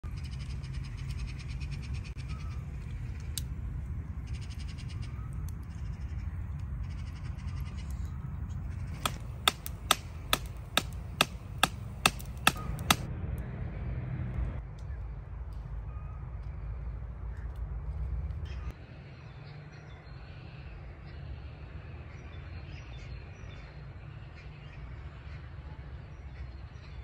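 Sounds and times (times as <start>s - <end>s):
low rumble: 0.0s - 19.0s
campfire crackling and popping: 0.1s - 13.1s.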